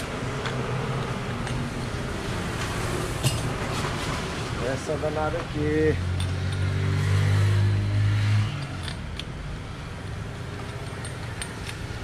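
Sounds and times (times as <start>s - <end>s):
socket wrench clicks: 8.6s - 9.4s, 10.6s - 11.9s.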